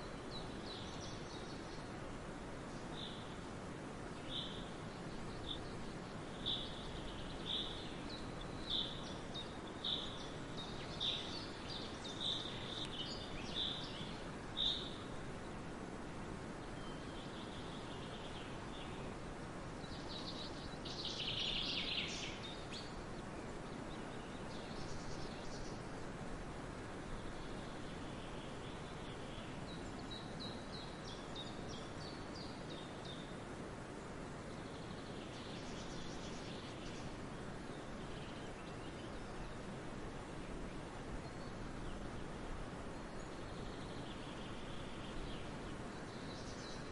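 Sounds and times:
wind rushing through grain field: 0:00.0 - 0:46.9
bird chirping: 0:04.2 - 0:15.1, 0:19.8 - 0:23.0.

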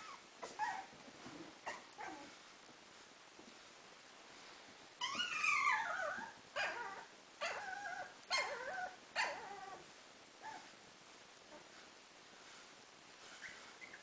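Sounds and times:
puppies whining: 0:00.0 - 0:01.0, 0:05.0 - 0:09.8, 0:13.4 - 0:14.0.

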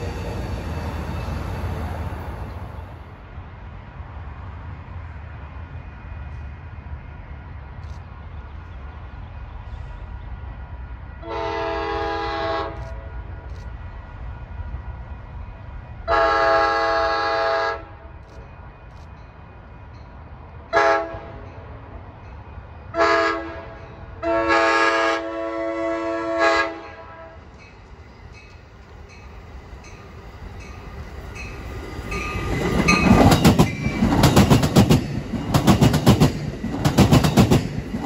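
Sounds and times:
low train rumble: 0:00.0 - 0:38.0
train air horn blasts: 0:11.2 - 0:13.1, 0:16.1 - 0:18.1, 0:20.7 - 0:21.4, 0:22.9 - 0:27.5.

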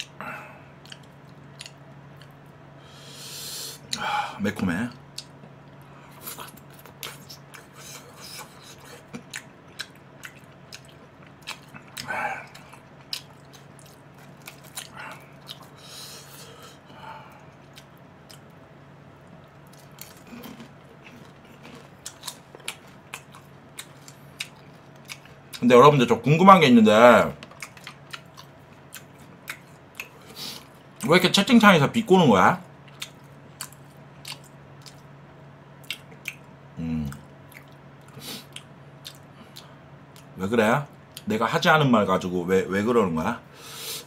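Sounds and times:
faint steady hum: 0:00.0 - 0:44.0
close chewing with sharp clicks: 0:00.8 - 0:02.4, 0:05.1 - 0:07.8, 0:08.7 - 0:15.7, 0:17.4 - 0:18.6, 0:19.2 - 0:25.7, 0:27.4 - 0:30.7, 0:32.8 - 0:35.1, 0:35.8 - 0:36.5, 0:37.1 - 0:40.3.

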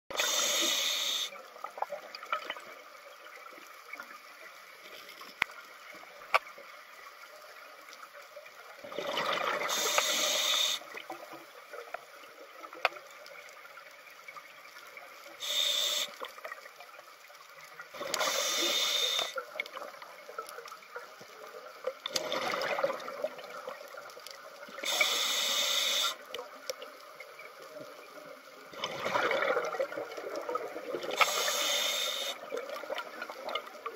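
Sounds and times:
regulator hissing inhale: 0:00.2 - 0:01.4, 0:09.7 - 0:10.9, 0:15.4 - 0:16.3, 0:18.0 - 0:19.4, 0:24.8 - 0:26.3, 0:31.1 - 0:32.4
faint clicks: 0:00.2 - 0:08.8, 0:09.6 - 0:28.6
exhaled bubbles gurgling: 0:08.8 - 0:11.8, 0:21.7 - 0:26.6, 0:28.6 - 0:33.9.

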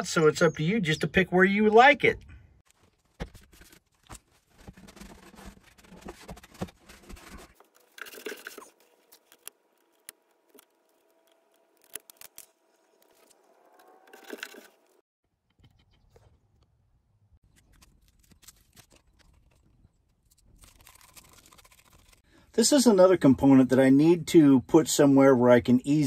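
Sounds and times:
hands rustling wiring: 0:02.6 - 0:15.0.

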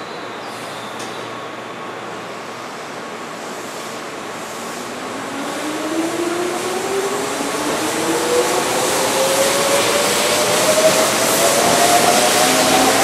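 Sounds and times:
electric train whine: 0:00.3 - 0:13.0
train wheels rumbling: 0:03.8 - 0:13.0.

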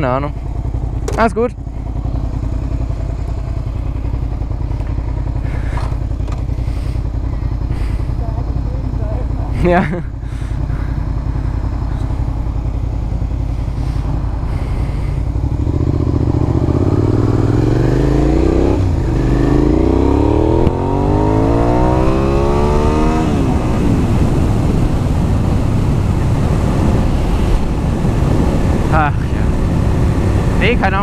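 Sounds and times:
motorcycle engine accelerating: 0:00.0 - 0:31.0
wind noise: 0:20.4 - 0:31.0.

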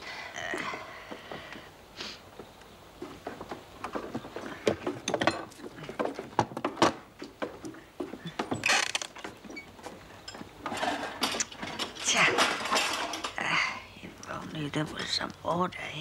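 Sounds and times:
knocks of wood and crockery: 0:03.2 - 0:13.4.

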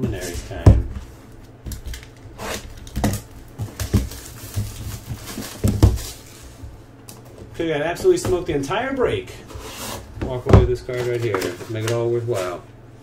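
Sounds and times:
cardboard box rustling: 0:01.9 - 0:06.7.

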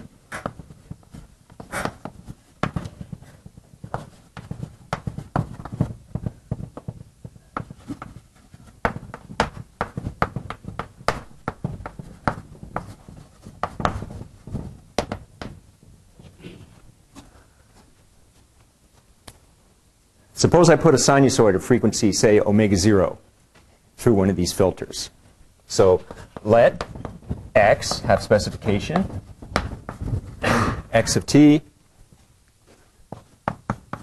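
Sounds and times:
dull thuds: 0:00.0 - 0:16.4, 0:26.0 - 0:30.5.

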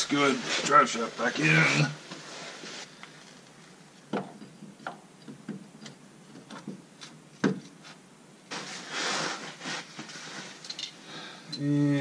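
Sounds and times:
rustling scrape: 0:00.0 - 0:03.7, 0:07.8 - 0:11.0.

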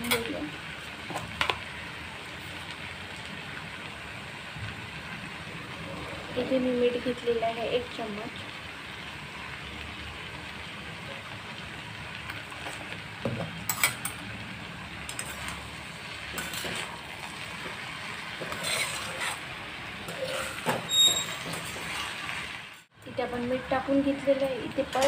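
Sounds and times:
vegetables sizzling: 0:00.0 - 0:25.0
spatula scraping metal pan: 0:16.3 - 0:17.4, 0:18.4 - 0:22.6.

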